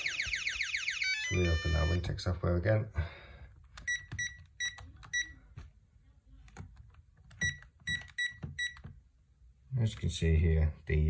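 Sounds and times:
alarm keypad beeps: 0.0 - 2.0, 3.9 - 5.4, 7.4 - 8.8.

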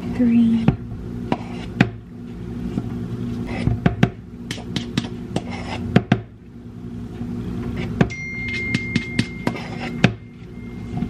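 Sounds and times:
low steady hum: 0.0 - 11.0
steady high tone: 8.1 - 11.0
knife scraping measuring cup: 9.0 - 10.1.

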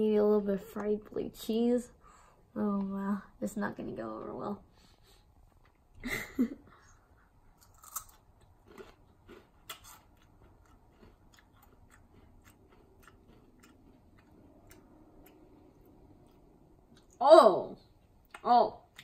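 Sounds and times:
crunching and chewing snack: 7.6 - 17.2.

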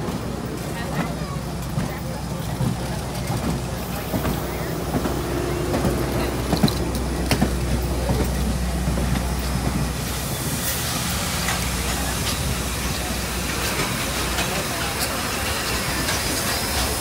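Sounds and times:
steam train rumbling past: 0.0 - 17.0
train wheel clicks: 1.6 - 17.0
steam hissing: 3.6 - 17.0.

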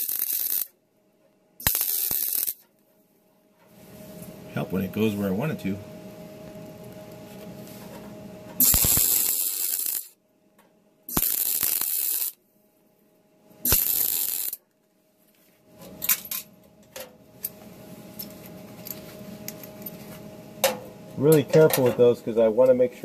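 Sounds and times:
welder arc bursts: 0.0 - 0.8, 1.6 - 2.6, 8.6 - 10.2, 11.1 - 12.4, 13.6 - 14.6.

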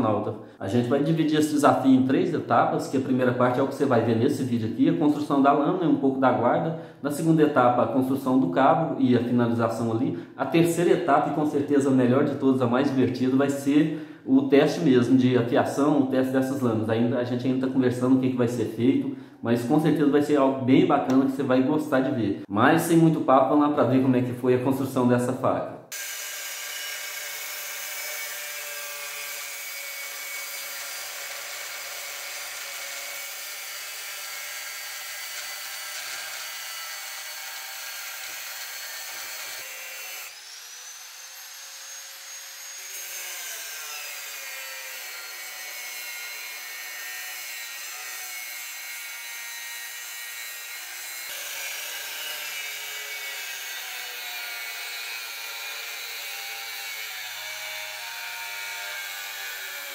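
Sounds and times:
angle grinder cutting steel: 25.9 - 59.9.

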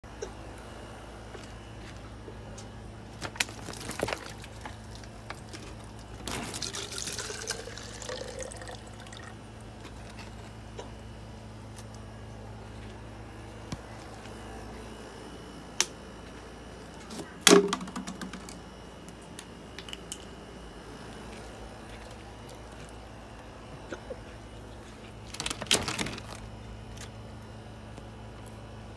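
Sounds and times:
water pouring into a dish: 6.5 - 9.2.

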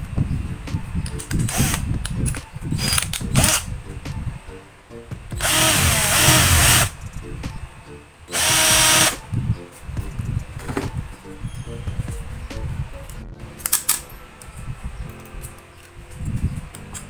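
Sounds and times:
cordless drill boring: 5.4 - 6.9, 8.3 - 9.2.

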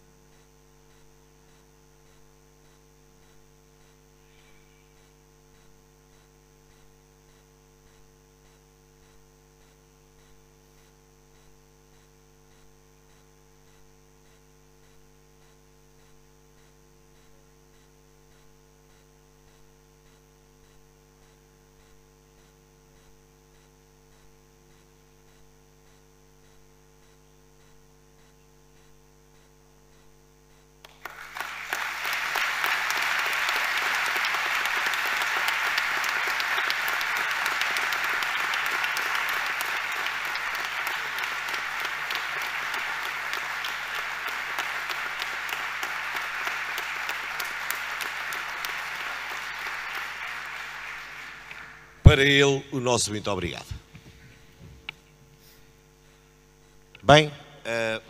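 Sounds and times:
electrical mains hum: 0.0 - 58.0
audience applause: 30.9 - 52.4.

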